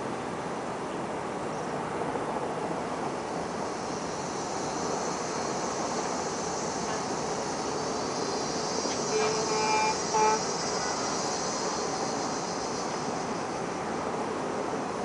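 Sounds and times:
distant city traffic hum: 0:00.0 - 0:15.0
horn blasts: 0:08.9 - 0:11.4.

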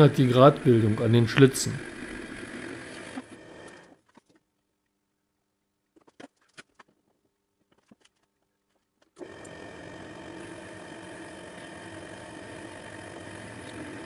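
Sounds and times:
metal lathe running: 0:00.0 - 0:03.8, 0:09.2 - 0:14.0.

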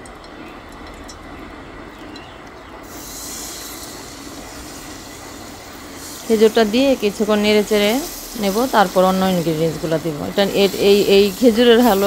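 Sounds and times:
ghee sizzling: 0:00.0 - 0:12.0.

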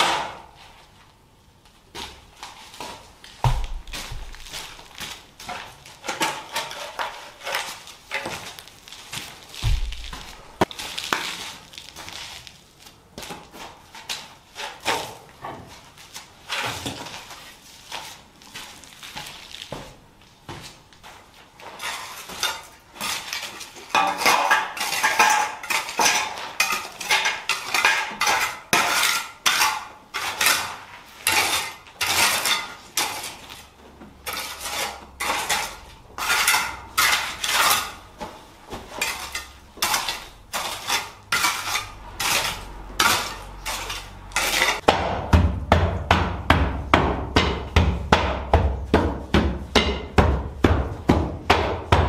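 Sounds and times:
hand tool scraping earth and stones: 0:02.8 - 0:19.8, 0:21.1 - 0:44.9
hand tamper pounding soil: 0:03.4 - 0:11.4.

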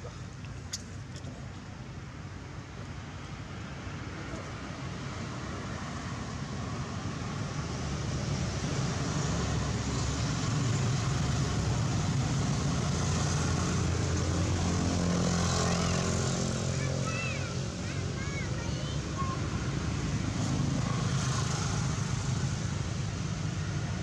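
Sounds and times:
vehicle engine and tyre rumble: 0:00.0 - 0:24.0.

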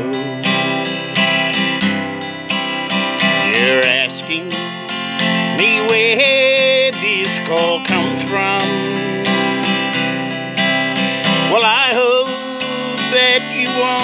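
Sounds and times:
man singing: 0:00.0 - 0:00.9, 0:03.2 - 0:10.0, 0:11.3 - 0:14.0
acoustic guitar strumming: 0:00.0 - 0:14.0.

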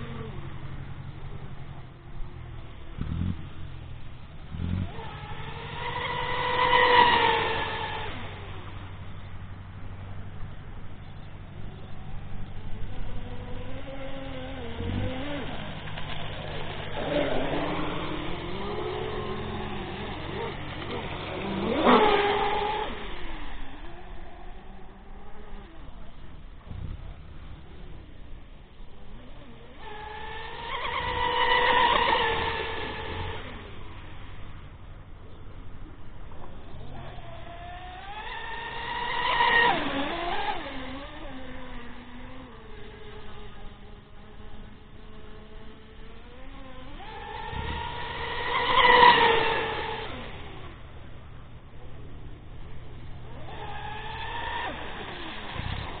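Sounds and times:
electric motors whining: 0:00.0 - 0:56.0.

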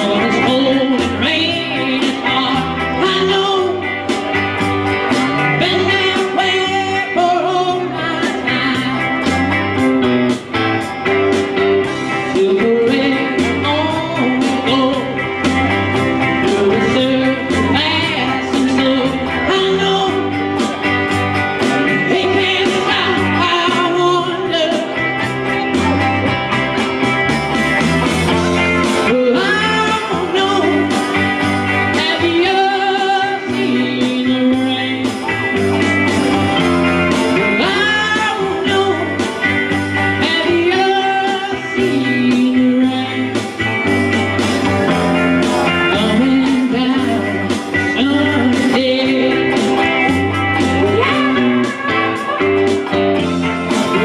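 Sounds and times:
man singing into microphone: 0:00.0 - 0:04.3, 0:05.4 - 0:09.3, 0:12.0 - 0:15.4, 0:16.2 - 0:20.9, 0:21.6 - 0:25.6, 0:28.8 - 0:35.6, 0:37.3 - 0:43.7, 0:45.6 - 0:54.0
bass line: 0:00.0 - 0:54.0
electric guitar strumming: 0:00.0 - 0:54.0
drum beat: 0:49.4 - 0:54.0.

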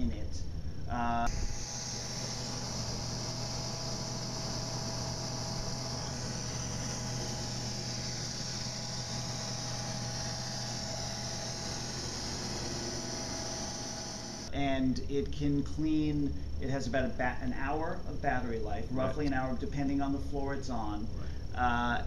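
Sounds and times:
robot vacuum whirring: 0:01.3 - 0:14.5.

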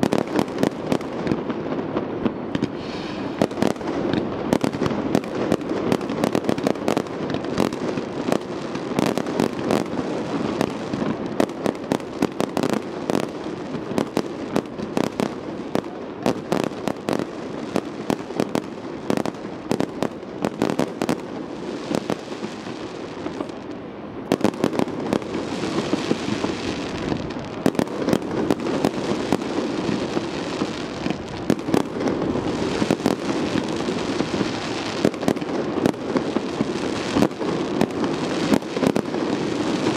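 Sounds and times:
crackling firework stars: 0:00.0 - 0:39.9.

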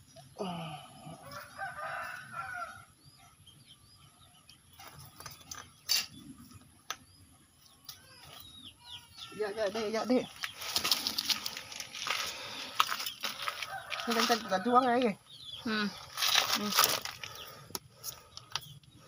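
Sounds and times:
small birds chirping: 0:00.0 - 0:19.0
rooster crowing: 0:01.2 - 0:02.9, 0:13.4 - 0:14.9.

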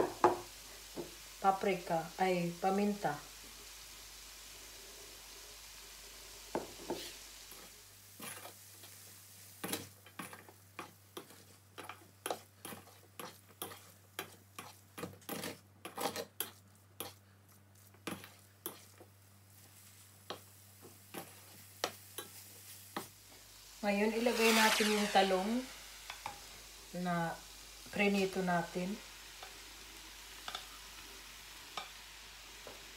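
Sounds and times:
faint sizzle: 0:00.0 - 0:32.9
spatula scraping frying pan: 0:08.2 - 0:23.2, 0:23.9 - 0:26.5.

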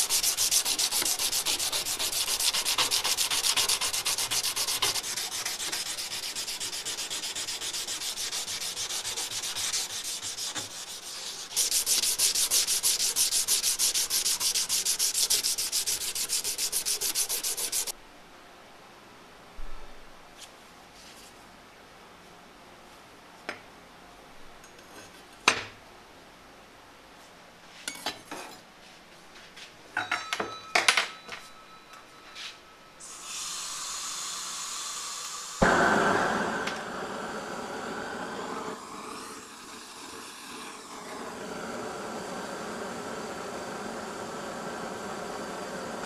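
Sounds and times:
gas burner roaring: 0:33.0 - 0:46.0
gas torch hissing: 0:33.0 - 0:46.0
gas torch lighting whump: 0:35.6 - 0:39.5.

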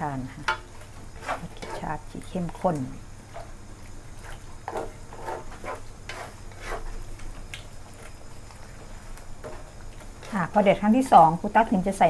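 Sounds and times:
curry simmering: 0:00.0 - 0:12.0
utensil scraping in a pot: 0:00.4 - 0:02.4, 0:04.2 - 0:11.6.

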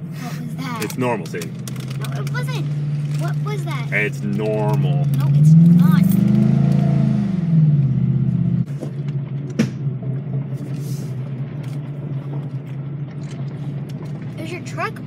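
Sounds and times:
steady engine hum: 0:00.0 - 0:15.0
man talking: 0:00.8 - 0:01.5, 0:03.9 - 0:05.1.

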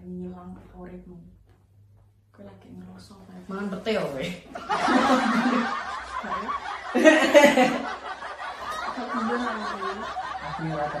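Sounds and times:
woman talking: 0:02.3 - 0:04.5.

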